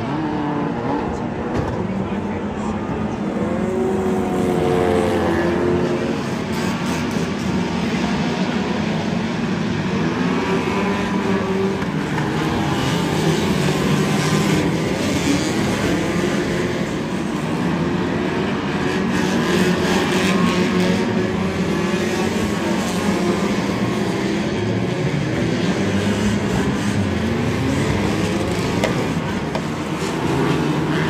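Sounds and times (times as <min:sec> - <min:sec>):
race car engines revving: 0:00.0 - 0:31.0.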